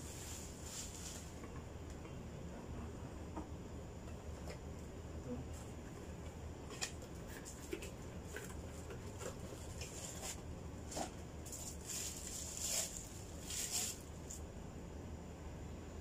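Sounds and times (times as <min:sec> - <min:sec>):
plastic packaging rustling: 0:00.0 - 0:01.4, 0:07.3 - 0:14.4.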